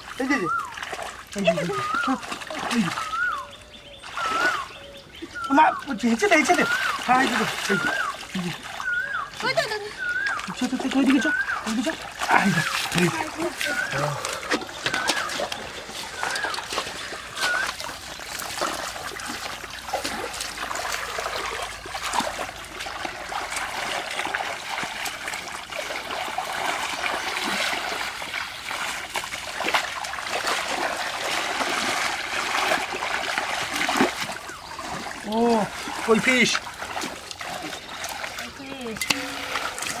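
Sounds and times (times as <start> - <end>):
hands splashing in muddy water: 0.0 - 4.7, 5.3 - 40.0.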